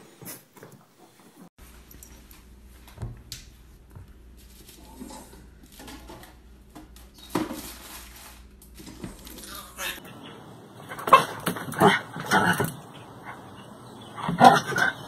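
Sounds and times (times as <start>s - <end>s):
dog and cat sparring: 9.9s - 15.0s.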